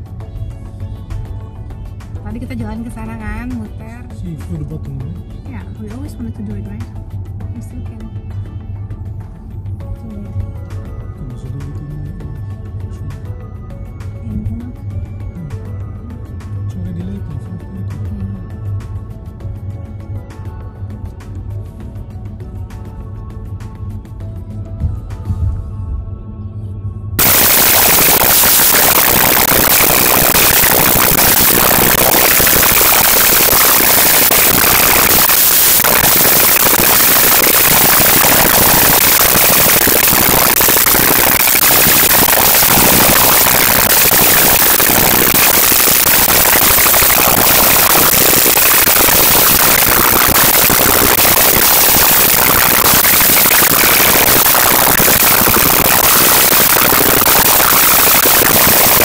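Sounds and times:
harsh crackling noise: 0:27.2 - 0:59.0.

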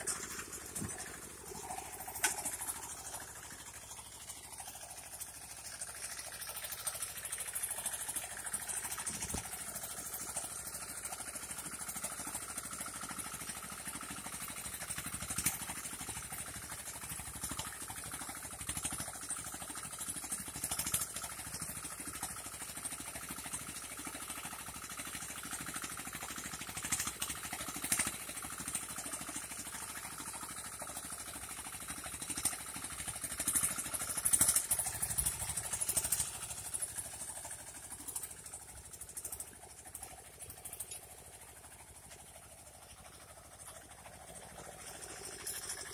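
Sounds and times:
tractor engine running: 0:00.0 - 0:45.9.

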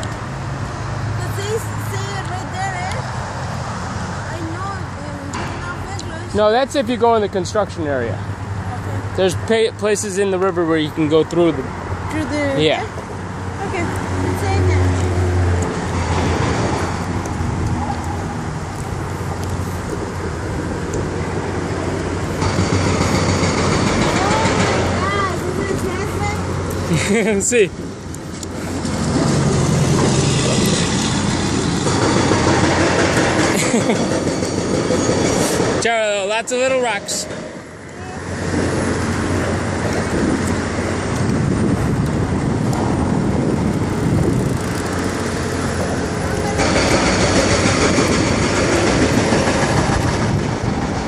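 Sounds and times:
skate wheels rolling on concrete: 0:09.9 - 0:51.0
skate wheels rolling on asphalt: 0:36.5 - 0:51.0.

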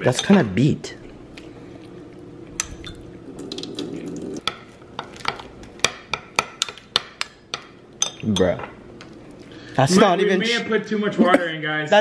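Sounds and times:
spoon clinking against glass: 0:08.0 - 0:08.6.

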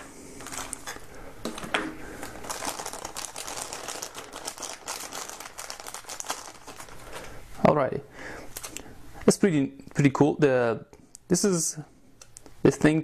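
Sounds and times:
plastic bag crinkling: 0:00.0 - 0:07.4.

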